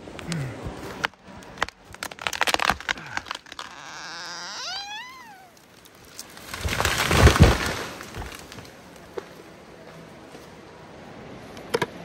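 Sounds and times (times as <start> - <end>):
tree crashing through branches: 0.9 - 9.4
heavy thuds of tree hitting ground: 6.3 - 8.7.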